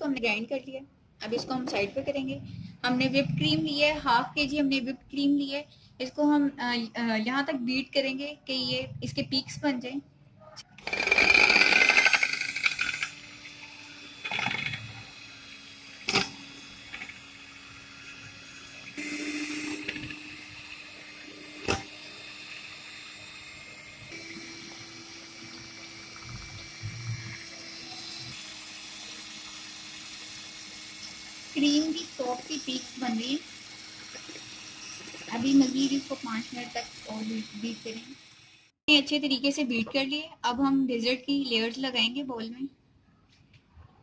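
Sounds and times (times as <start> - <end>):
electric hand mixer motor hum: 10.8 - 38.8.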